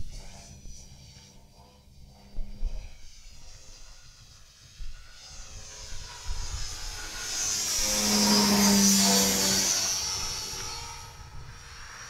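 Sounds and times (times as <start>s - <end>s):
low steady hum: 0.0s - 12.0s
glider rushing air whoosh: 6.5s - 11.2s.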